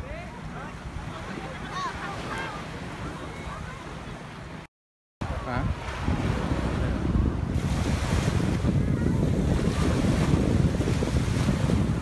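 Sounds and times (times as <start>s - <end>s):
small sea waves: 0.0s - 12.0s
wind buffeting microphone: 5.2s - 12.0s.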